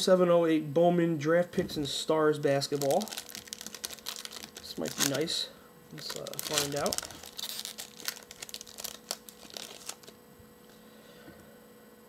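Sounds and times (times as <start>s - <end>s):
wrapper crinkling as torn open: 2.7s - 5.4s, 6.0s - 10.2s.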